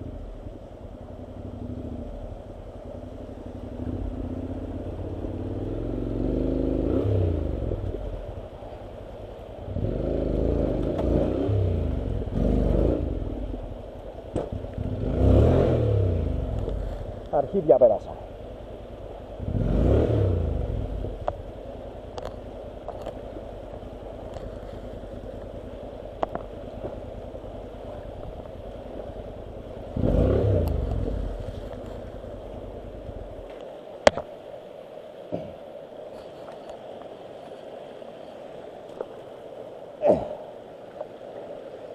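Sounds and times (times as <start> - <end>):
motorcycle engine running: 0.0 - 17.3, 18.2 - 33.5
rushing mountain stream: 0.0 - 41.9.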